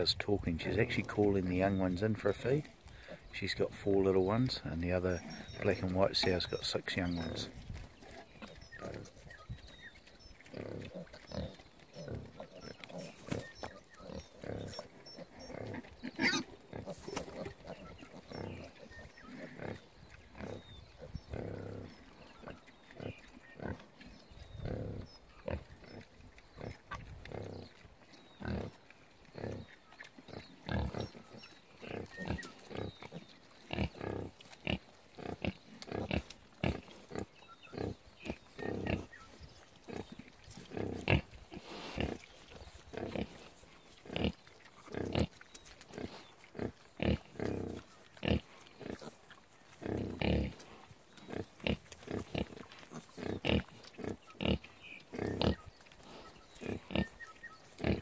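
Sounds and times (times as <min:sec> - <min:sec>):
sow grunting: 0:49.8 - 0:58.0.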